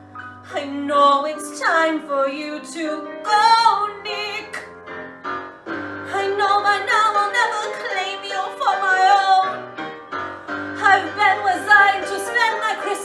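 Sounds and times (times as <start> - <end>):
musical accompaniment: 0.0 - 13.0
woman singing: 0.5 - 4.7, 6.1 - 9.6, 10.8 - 13.0.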